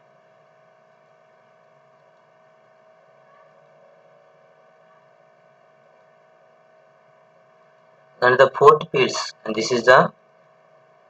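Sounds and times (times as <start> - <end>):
faint steady hum with hiss: 0.0 - 11.0.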